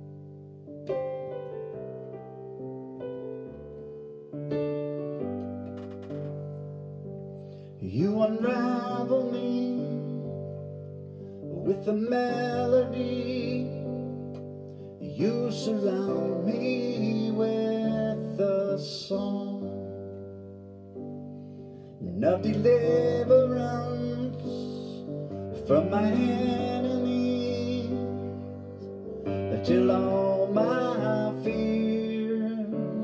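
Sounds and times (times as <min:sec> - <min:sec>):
sustained piano chords: 0:00.0 - 0:33.0
man singing: 0:07.8 - 0:20.2, 0:22.0 - 0:33.0.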